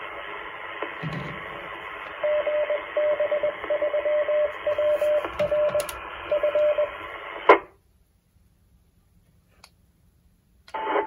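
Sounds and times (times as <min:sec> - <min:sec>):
radio signal hiss: 0:00.0 - 0:03.8, 0:04.5 - 0:07.8, 0:10.7 - 0:11.0
morse code tone: 0:02.2 - 0:07.0.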